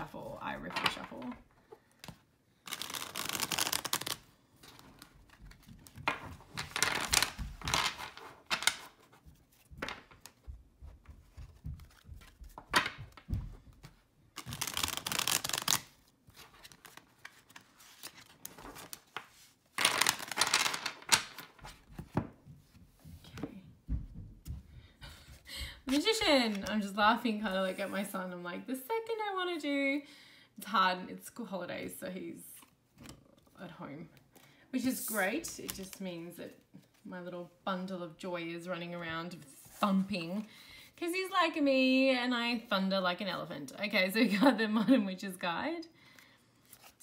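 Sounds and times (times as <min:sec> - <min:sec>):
cards riffle-shuffled by hand: 0:01.9 - 0:22.2.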